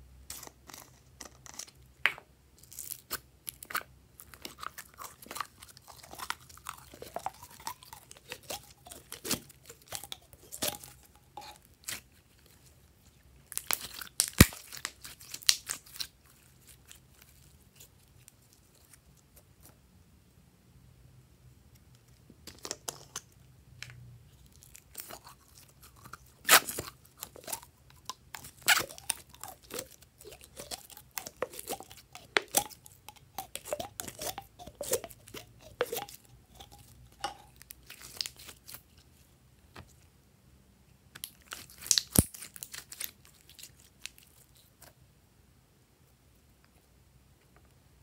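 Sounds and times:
slime squelching: 0:02.6 - 0:19.7, 0:24.3 - 0:40.0, 0:41.1 - 0:44.9.

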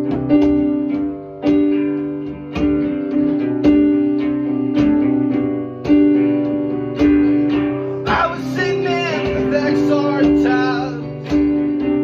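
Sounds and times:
person singing: 0:08.0 - 0:11.4.

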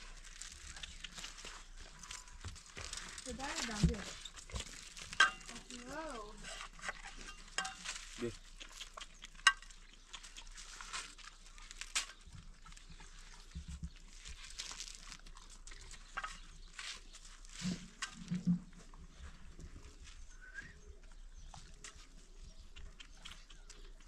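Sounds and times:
hands tearing dry flatbread: 0:07.8 - 0:12.9, 0:14.0 - 0:17.8.

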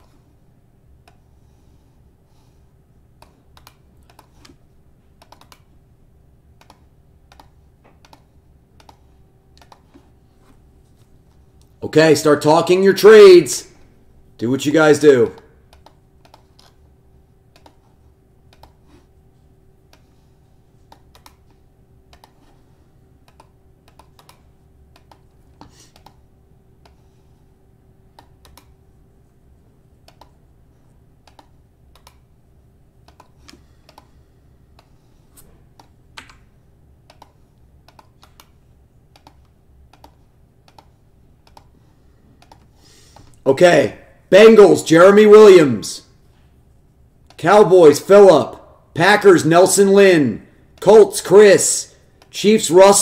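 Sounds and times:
low steady hum: 0:00.0 - 0:53.0
computer keyboard keystrokes: 0:03.2 - 0:04.5, 0:05.2 - 0:05.7, 0:06.6 - 0:09.0, 0:09.6 - 0:09.9, 0:15.7 - 0:16.8, 0:17.5 - 0:17.9, 0:18.5 - 0:18.8, 0:20.9 - 0:21.5, 0:23.2 - 0:25.3, 0:30.0 - 0:30.4, 0:31.2 - 0:32.2, 0:37.1 - 0:41.7.

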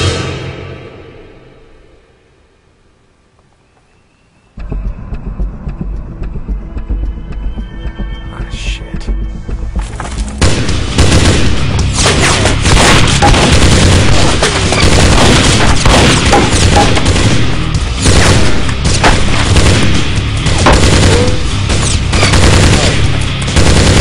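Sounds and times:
rapid gunfire with booms: 0:10.4 - 0:24.0.

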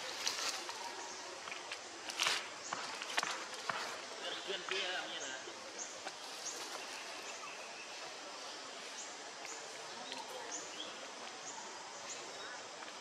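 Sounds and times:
steady canopy hiss: 0:00.0 - 0:13.0
bird chirping: 0:02.6 - 0:12.8.

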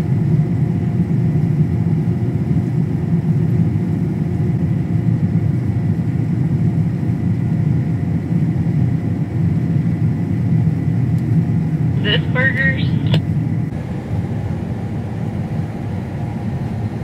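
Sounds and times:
vehicle engine drone: 0:11.0 - 0:17.0.

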